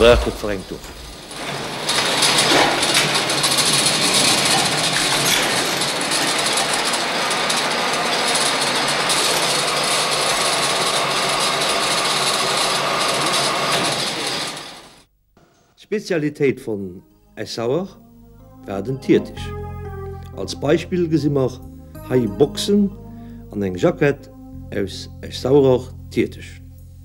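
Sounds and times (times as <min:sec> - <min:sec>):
spinning machine clattering and whirring: 0:00.0 - 0:15.0.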